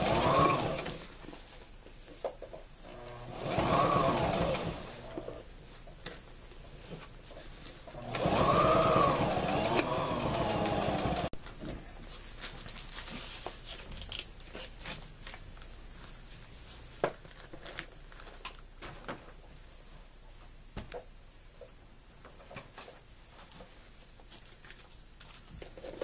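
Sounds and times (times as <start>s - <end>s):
sewing machine running: 0.0s - 1.0s, 2.9s - 5.3s, 8.0s - 11.3s.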